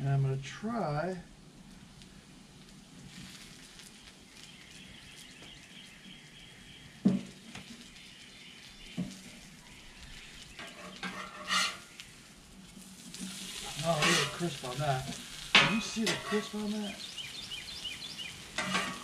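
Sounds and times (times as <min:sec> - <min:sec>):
potatoes sizzling in oil: 0:00.9 - 0:19.0
spatula clanking on steel plate: 0:10.6 - 0:11.8, 0:13.9 - 0:14.4, 0:15.5 - 0:16.6, 0:18.6 - 0:19.0
metal spatulas scraping: 0:10.6 - 0:11.9, 0:13.2 - 0:14.7, 0:15.6 - 0:16.7, 0:18.6 - 0:19.0.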